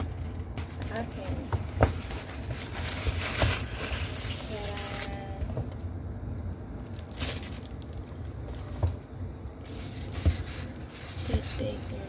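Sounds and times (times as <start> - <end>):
paper rustling and crinkling: 0.0 - 5.6, 9.6 - 12.0.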